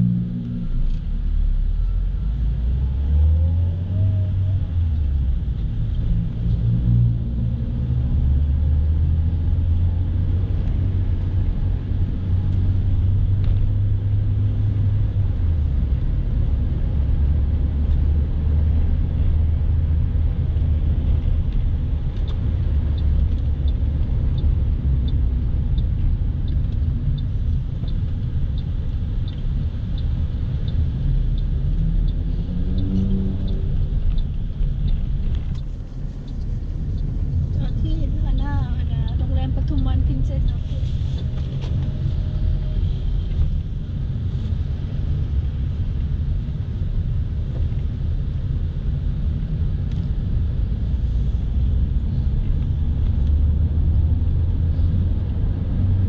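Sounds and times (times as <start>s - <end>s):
car engine and road noise: 0.0s - 56.0s
light even ticking: 22.2s - 40.6s.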